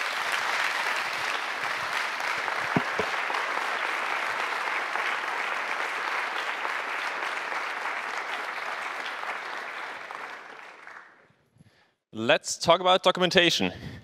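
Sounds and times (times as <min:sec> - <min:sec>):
audience applauding: 0:00.0 - 0:11.2
brief thumps: 0:02.8 - 0:03.2.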